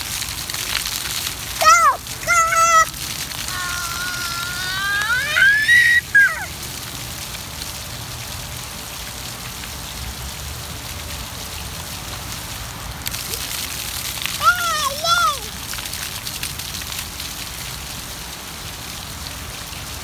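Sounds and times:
fountain water spattering on paving: 0:00.0 - 0:20.0
small child's excited voice: 0:01.5 - 0:06.6, 0:14.3 - 0:15.6.

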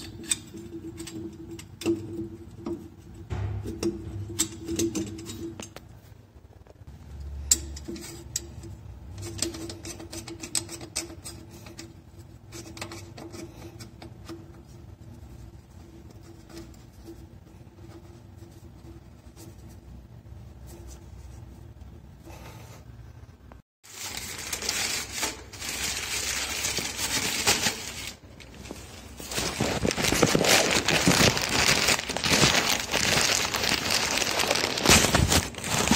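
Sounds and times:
metal fitting clicks and scrapes: 0:00.0 - 0:05.9, 0:07.2 - 0:14.7.

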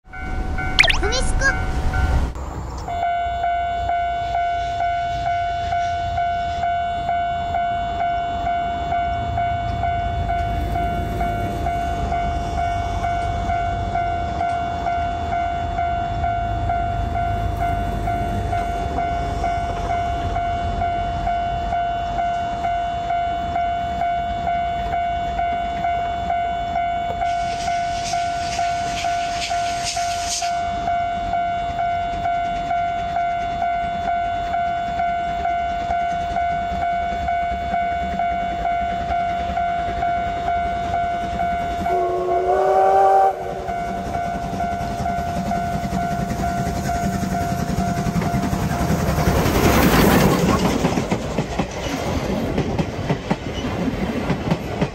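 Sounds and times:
train rumble: 0:00.1 - 0:54.9
level crossing alarm ringing: 0:02.9 - 0:48.6
steam locomotive whistle: 0:20.3 - 0:32.2, 0:32.8 - 0:48.3.

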